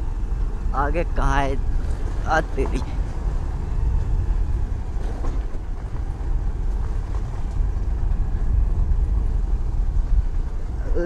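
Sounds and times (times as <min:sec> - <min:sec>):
wind rumbling on microphone: 0:00.0 - 0:11.0
motorbike engine and tyres on gravel: 0:03.0 - 0:10.8.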